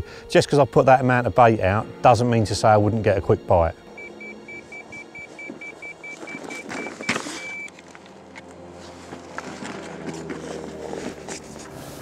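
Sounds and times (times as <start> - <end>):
bite alarm rapid beeps: 4.0 - 7.7
footsteps on gravel: 4.8 - 11.8.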